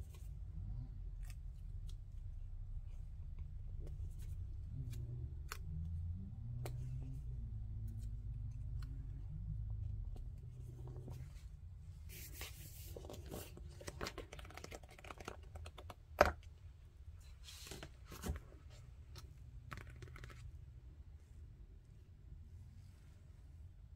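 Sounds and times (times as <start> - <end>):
pages rustling and crinkling: 12.1 - 16.0, 17.2 - 20.5.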